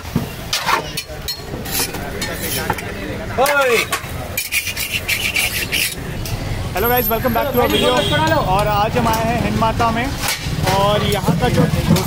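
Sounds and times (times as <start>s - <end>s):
metal spatula scraping griddle: 0.6s - 6.2s.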